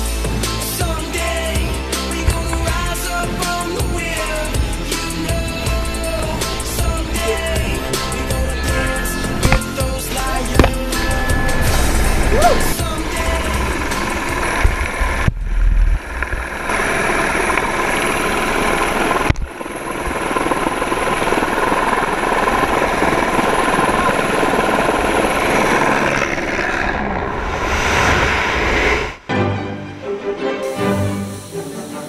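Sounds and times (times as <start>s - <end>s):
helicopter rotor and engine: 1.2s - 14.5s, 16.4s - 27.1s
wind rushing past microphone: 25.0s - 29.3s.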